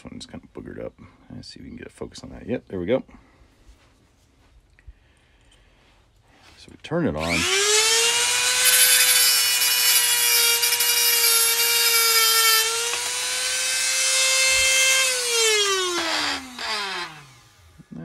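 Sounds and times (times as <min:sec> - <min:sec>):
motor spinning down: 0:07.2 - 0:18.0
rotary tool high whine: 0:07.2 - 0:18.0
electrode grinding against disc: 0:07.3 - 0:17.9.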